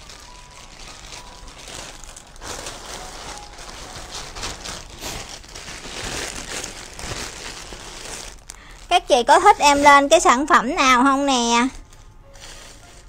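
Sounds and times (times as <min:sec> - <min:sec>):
plastic bag crinkling: 0:00.0 - 0:13.0
clothing pushed into bag: 0:02.4 - 0:08.5.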